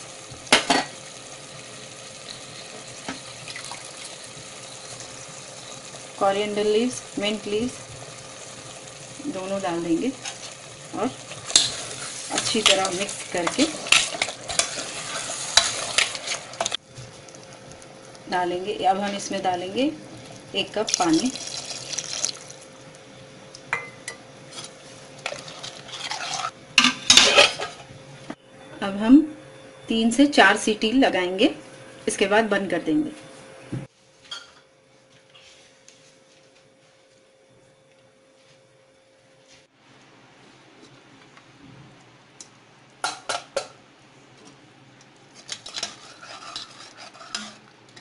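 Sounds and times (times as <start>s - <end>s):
meat sizzling in pressure cooker: 0.0s - 22.8s
ladle stirring in metal pot: 10.1s - 16.8s, 24.6s - 26.6s, 45.4s - 48.0s.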